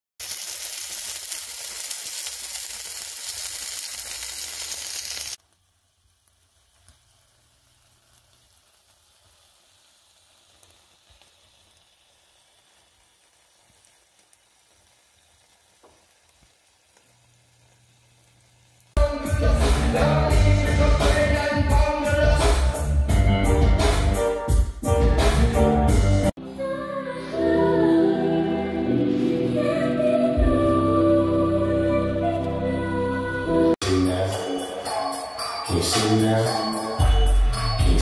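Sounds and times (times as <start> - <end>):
steaks sizzling in skillet: 0.2 - 19.0.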